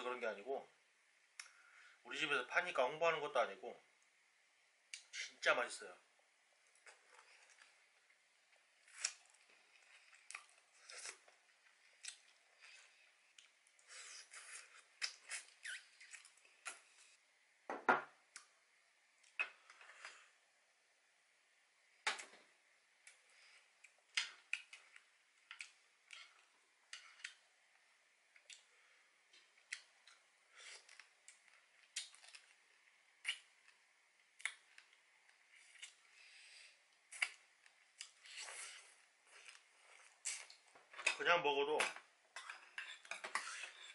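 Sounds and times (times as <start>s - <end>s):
person sucking and chewing crab: 8.8s - 17.2s, 28.4s - 40.6s.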